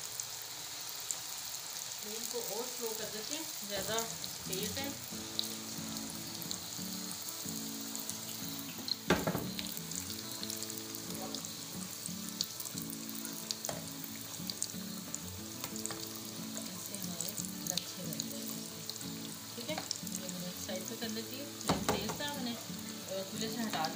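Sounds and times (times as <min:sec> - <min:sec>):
dough sizzling in hot oil: 0:00.0 - 0:23.9
sharp knock: 0:09.1 - 0:09.6.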